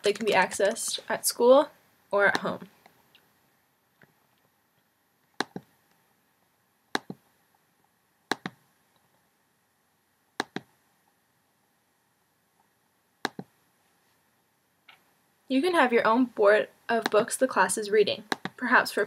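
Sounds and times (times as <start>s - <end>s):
computer mouse clicks: 5.4s - 5.7s, 6.9s - 7.2s, 8.3s - 8.6s, 10.4s - 10.7s, 13.2s - 13.5s, 18.3s - 18.6s.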